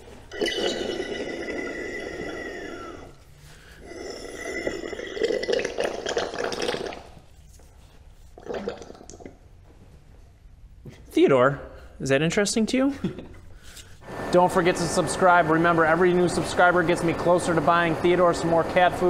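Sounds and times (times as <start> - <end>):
hydraulic oil gurgling and hissing: 0.0 - 7.3.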